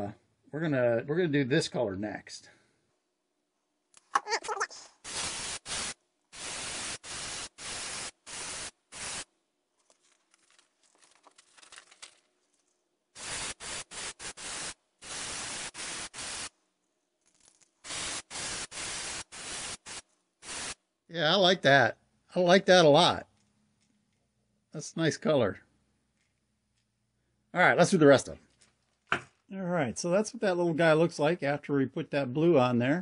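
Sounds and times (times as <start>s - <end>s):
airbrush spraying hiss: 5.0s - 9.3s, 13.2s - 16.5s, 17.8s - 20.8s.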